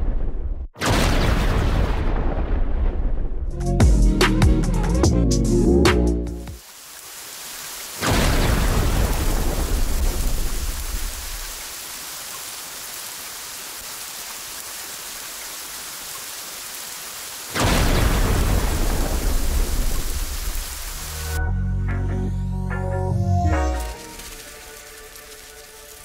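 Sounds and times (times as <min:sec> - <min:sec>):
heavy rain: 0:06.5 - 0:21.4, 0:23.4 - 0:26.0
thunder rumbling: 0:17.6 - 0:21.1.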